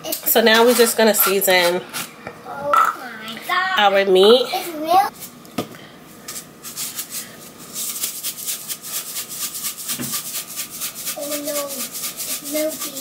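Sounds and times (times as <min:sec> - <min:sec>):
seasoning shaker rattling: 0:06.3 - 0:13.0.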